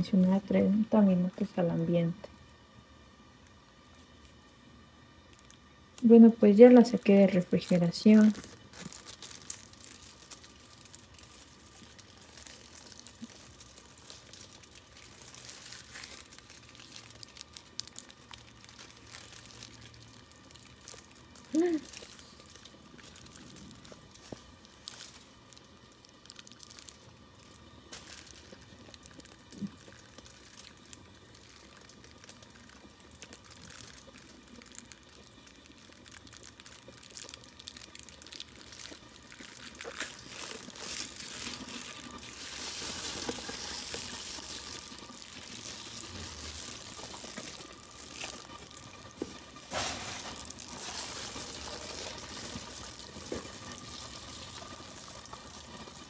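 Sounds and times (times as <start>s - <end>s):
paper rustling and crinkling: 7.7s - 19.9s, 36.1s - 55.9s.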